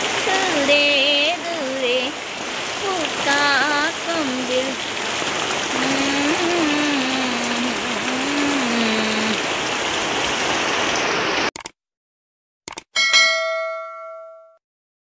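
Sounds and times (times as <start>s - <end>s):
heavy rain on ground: 0.0s - 11.5s.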